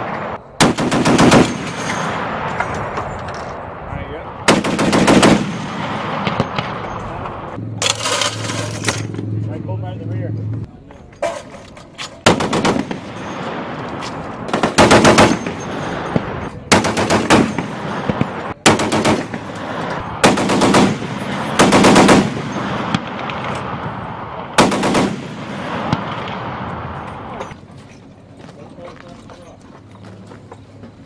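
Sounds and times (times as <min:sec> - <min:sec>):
heavy machine gun bursts: 0:00.6 - 0:02.0, 0:14.5 - 0:22.8.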